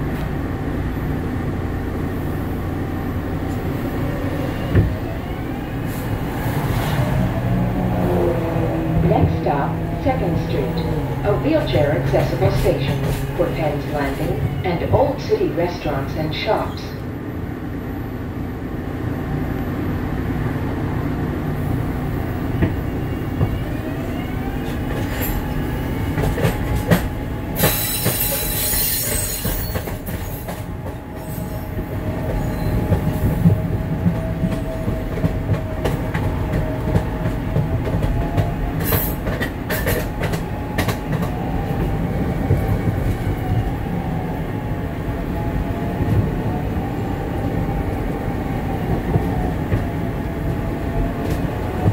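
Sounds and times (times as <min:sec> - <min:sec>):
wheels rumbling on rail: 0:00.0 - 0:51.9
rail joint clicks: 0:05.9 - 0:16.9, 0:24.4 - 0:43.8
wheel screech: 0:27.7 - 0:29.8.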